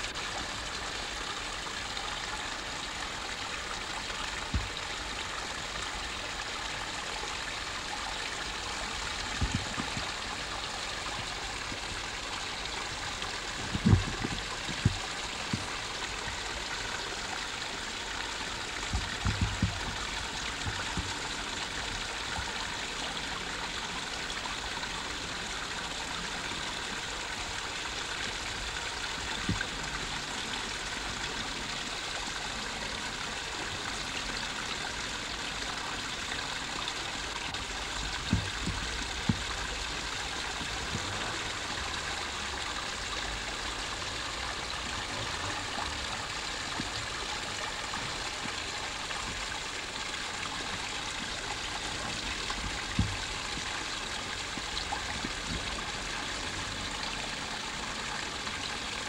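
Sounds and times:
water trickling over stones: 0.0 - 59.0
dull low bumps: 9.1 - 10.4, 12.8 - 16.4, 18.8 - 21.4, 37.6 - 42.4.

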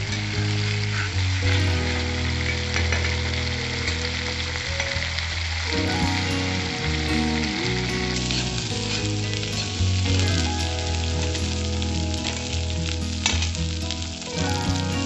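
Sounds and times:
background music with low notes: 0.0 - 15.0
paste sizzling in hot oil: 0.0 - 15.0
spatula scraping a pan: 8.3 - 9.8.

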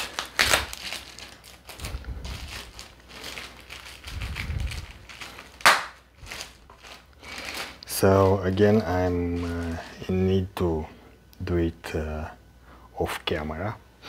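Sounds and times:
plastic bag crinkling: 0.0 - 10.6.

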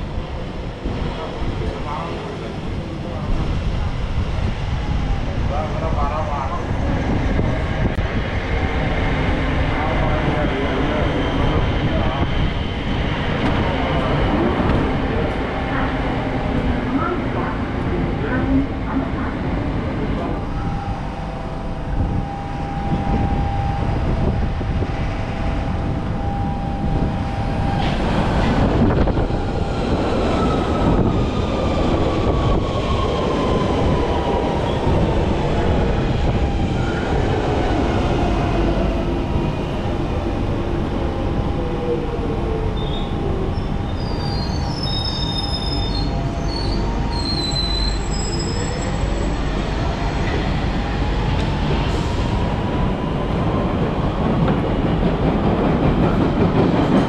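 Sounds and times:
rumbling train wheels: 0.0 - 57.0
wheel and brake squeals: 42.8 - 49.4.

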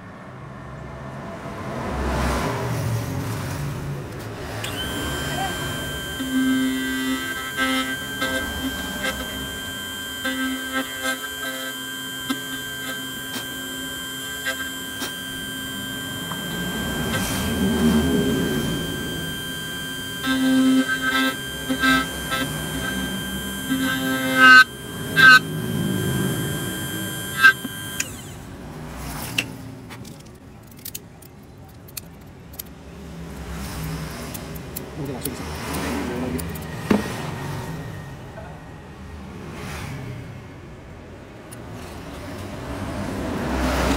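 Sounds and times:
key-cutting machine motor humming: 4.4 - 28.7.

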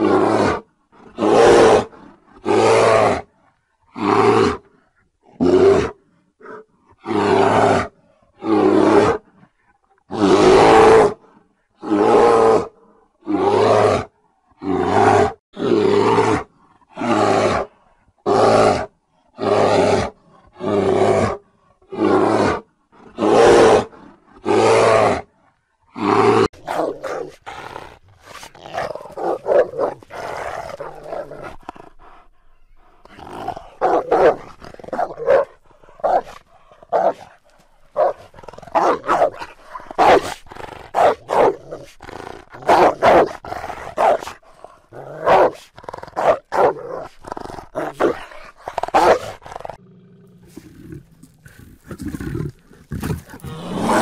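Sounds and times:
bears roaring: 0.0 - 3.3, 25.9 - 54.0
wolves growling: 0.0 - 54.0
wolves yelping and barking: 28.7 - 33.0, 33.7 - 40.4.

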